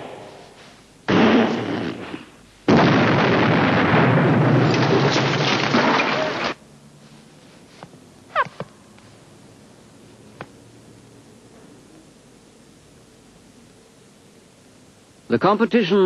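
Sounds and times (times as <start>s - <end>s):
artillery explosions: 0.0s - 6.6s.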